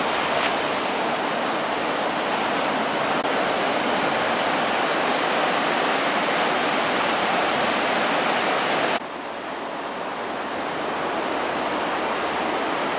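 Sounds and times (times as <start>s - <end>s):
small waves breaking on beach: 0.0s - 12.9s.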